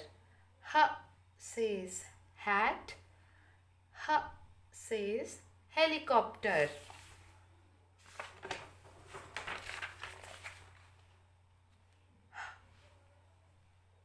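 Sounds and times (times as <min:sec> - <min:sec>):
short breath: 0:12.3 - 0:13.0.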